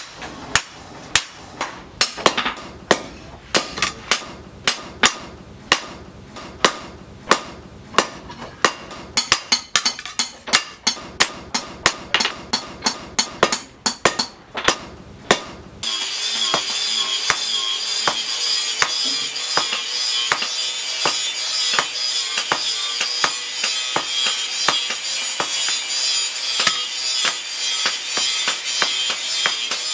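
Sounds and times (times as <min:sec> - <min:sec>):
hammer striking hot metal on anvil: 0:00.0 - 0:29.9
high-pitched drone: 0:15.8 - 0:19.5.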